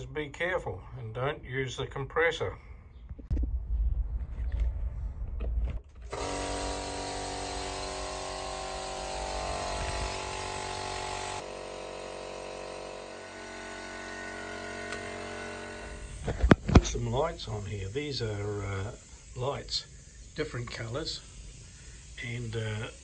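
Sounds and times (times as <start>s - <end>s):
low knocks: 3.1s - 6.1s
electric air compressor running: 6.0s - 16.8s, 21.2s - 23.0s.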